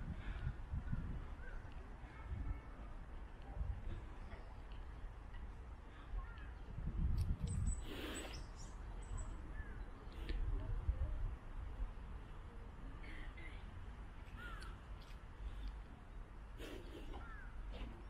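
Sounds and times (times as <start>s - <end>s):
birds calling: 16.6s - 18.0s.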